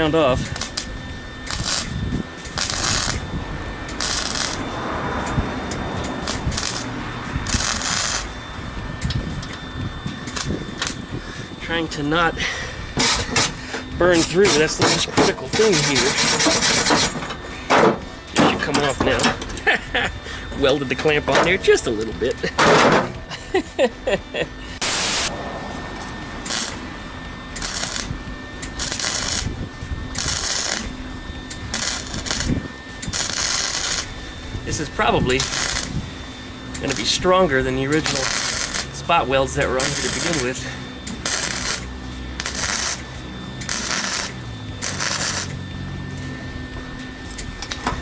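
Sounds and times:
welder crackling: 0.0 - 19.8, 24.8 - 25.4, 26.2 - 45.6
static hiss: 1.5 - 3.2, 24.8 - 25.3.

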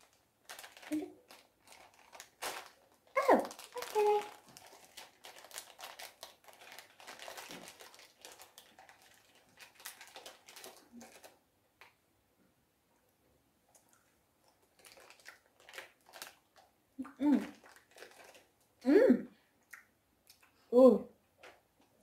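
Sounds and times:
plastic wrapper crinkling: 0.0 - 11.9, 14.5 - 16.7, 17.3 - 18.7.

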